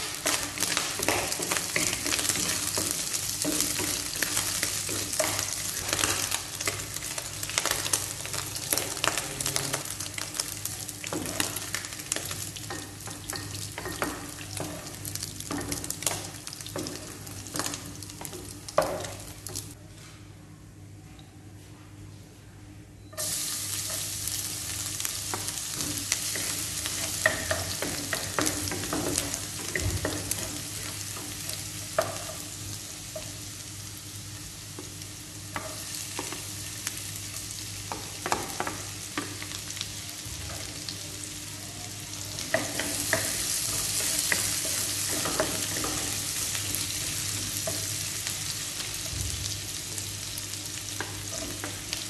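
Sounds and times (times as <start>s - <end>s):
garlic sizzling in hot oil: 0.0s - 19.8s, 23.2s - 52.0s.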